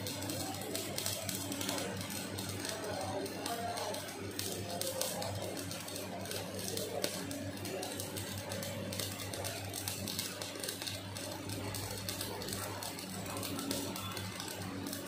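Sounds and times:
welding arc crackling: 0:00.0 - 0:15.0.

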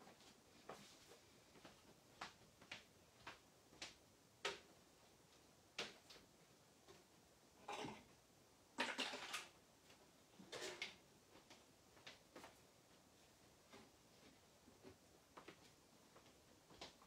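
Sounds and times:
objects knocking and clattering: 0:08.8 - 0:09.6.

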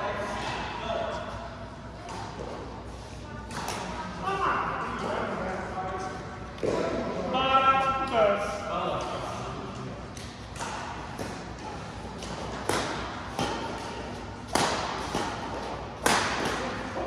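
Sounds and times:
rackets hitting shuttlecock: 0:03.4 - 0:04.0, 0:10.1 - 0:17.0.

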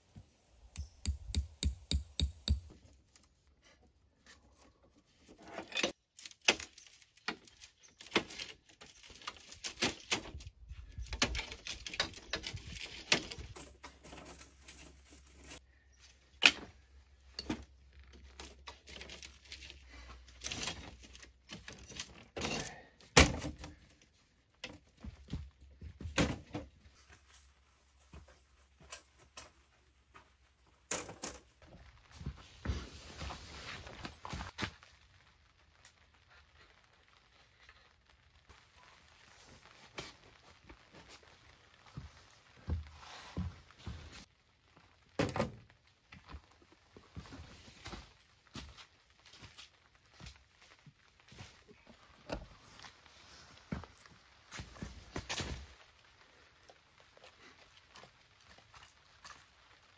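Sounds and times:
camp gear knocking: 0:00.8 - 0:02.7.

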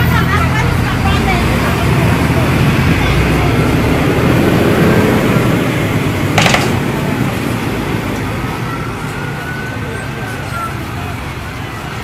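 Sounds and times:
truck and bus traffic noise: 0:00.0 - 0:12.0.

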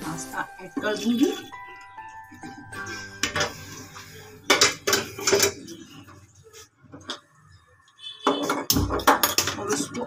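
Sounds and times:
metal utensils clattering on pan: 0:03.1 - 0:03.8, 0:04.4 - 0:06.0, 0:08.2 - 0:10.0.

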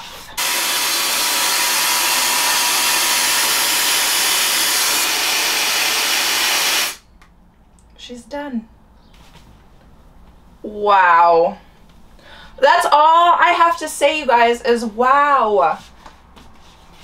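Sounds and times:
hair dryer blowing: 0:00.0 - 0:07.0.

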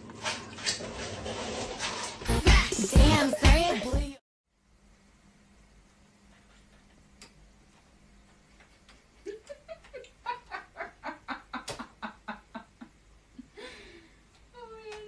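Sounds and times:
person laughing: 0:02.6 - 0:04.1, 0:09.2 - 0:13.7.

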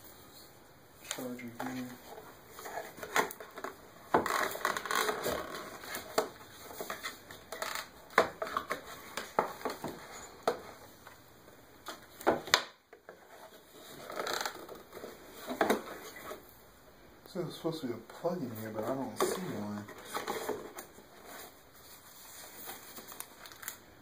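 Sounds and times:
cardboard rustling and crinkling: 0:01.2 - 0:11.0, 0:18.2 - 0:23.8.

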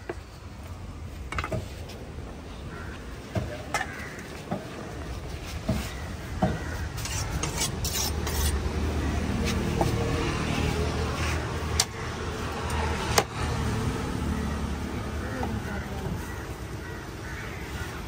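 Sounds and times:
knife scraping fish scales: 0:06.9 - 0:08.6.

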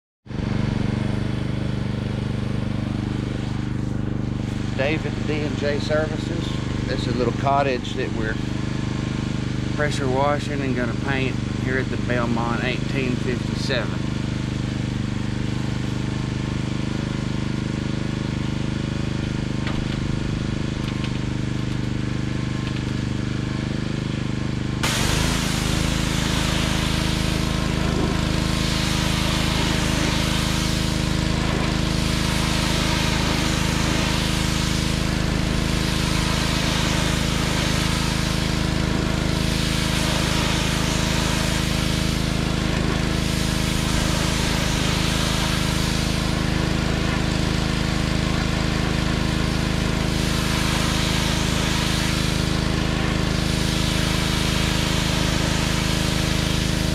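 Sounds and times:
pressure washer engine running: 0:00.3 - 0:56.9
water jet hissing on wood: 0:02.4 - 0:14.6, 0:24.8 - 0:56.9.

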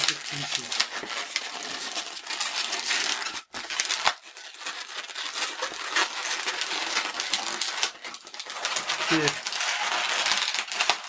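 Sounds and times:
balloon rubbing and creaking: 0:00.0 - 0:04.0, 0:05.0 - 0:11.0.

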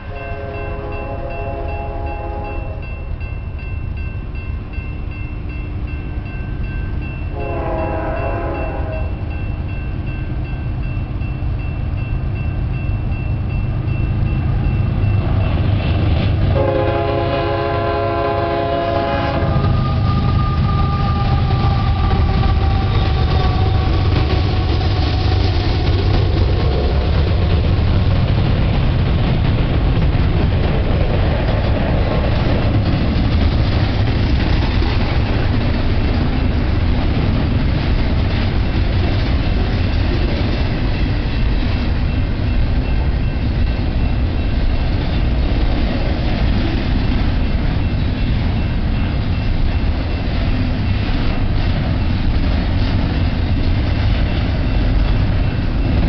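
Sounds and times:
locomotive horn blast: 0:00.0 - 0:02.8, 0:07.3 - 0:09.2, 0:16.5 - 0:22.1
train cars rumbling: 0:00.0 - 0:56.0.

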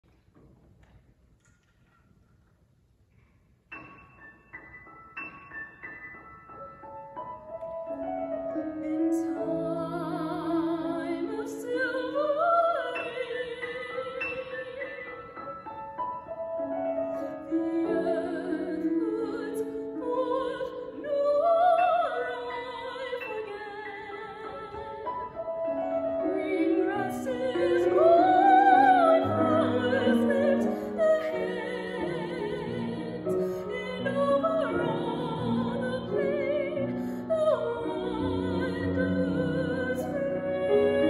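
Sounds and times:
grand piano: 0:00.0 - 0:41.0
woman singing operatically: 0:08.6 - 0:14.9, 0:17.4 - 0:25.1, 0:25.7 - 0:41.0.

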